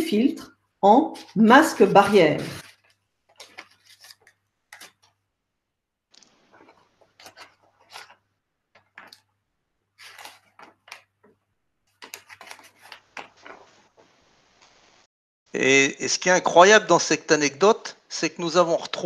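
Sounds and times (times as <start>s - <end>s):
paper filter crinkling: 1.2s - 5.2s, 6.1s - 9.3s, 10.0s - 11.3s, 11.9s - 14.8s.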